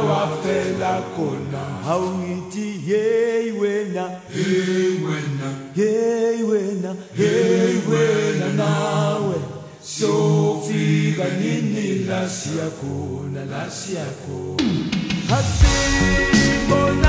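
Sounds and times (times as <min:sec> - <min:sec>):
choir singing long held notes: 0:00.0 - 0:05.9, 0:07.1 - 0:14.7.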